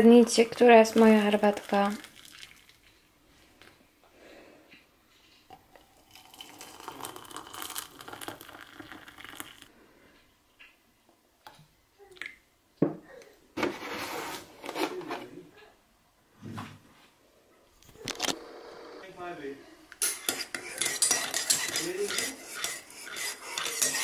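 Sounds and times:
hot water pouring into a mug: 0.8s - 2.9s, 5.7s - 9.7s
milk splashing into tea: 0.9s - 3.0s, 5.8s - 9.7s.

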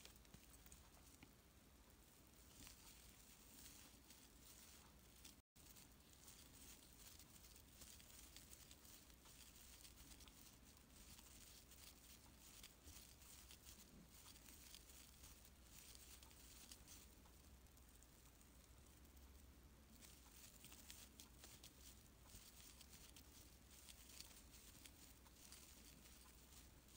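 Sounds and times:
faint yarn rustling: 0.0s - 26.9s.

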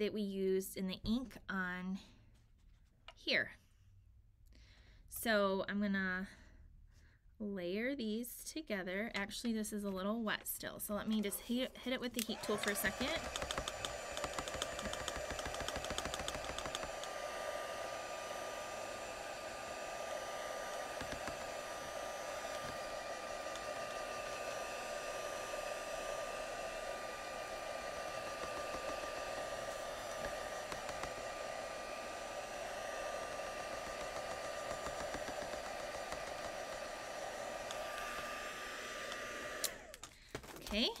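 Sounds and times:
heat gun blowing with whine: 12.2s - 40.1s.

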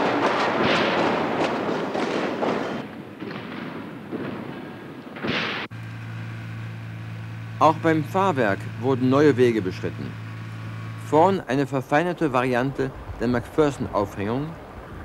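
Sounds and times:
low steady hum: 5.7s - 15.0s.

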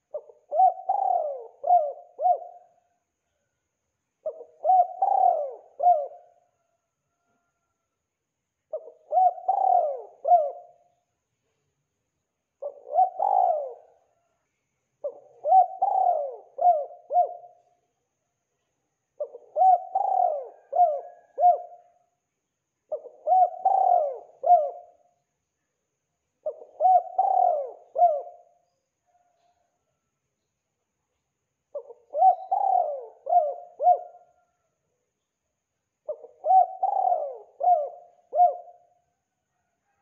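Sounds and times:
dove cooing: 0.0s - 2.9s, 4.2s - 6.5s, 8.7s - 10.9s, 12.6s - 14.2s, 15.0s - 17.7s, 19.2s - 22.0s, 22.9s - 25.1s, 26.4s - 29.7s, 31.7s - 34.7s, 36.0s - 39.0s.

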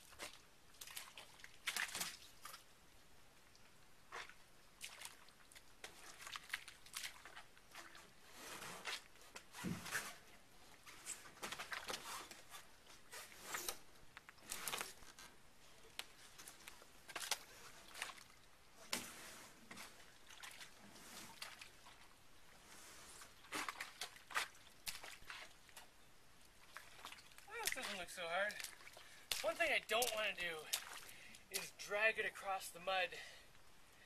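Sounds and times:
squelches in wet mud: 0.0s - 2.8s, 4.0s - 8.2s, 19.8s - 22.2s, 23.3s - 32.8s.

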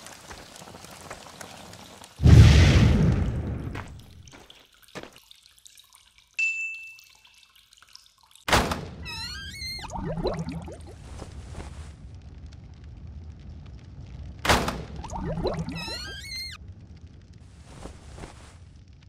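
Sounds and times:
rising squeaky whistle tones: 9.0s - 10.2s, 15.1s - 16.6s
low warbling squeaks: 9.0s - 10.9s, 15.0s - 16.6s.

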